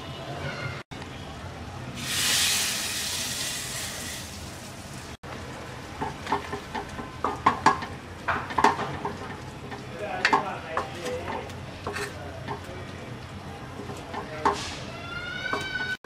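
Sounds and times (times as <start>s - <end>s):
ghee sizzling in pan: 2.0s - 9.9s
wooden spatula scraping pan: 10.8s - 12.2s.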